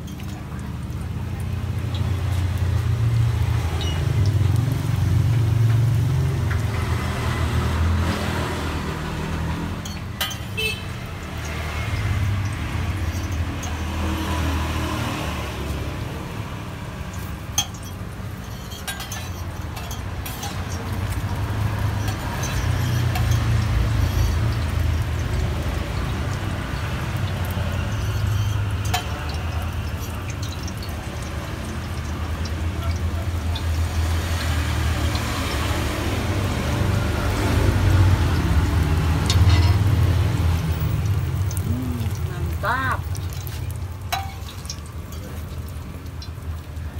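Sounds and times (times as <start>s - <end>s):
metal spatula clinking on griddle: 9.8s - 10.8s, 12.9s - 14.0s, 17.2s - 24.6s, 27.8s - 31.0s, 39.2s - 40.0s, 43.1s - 46.4s.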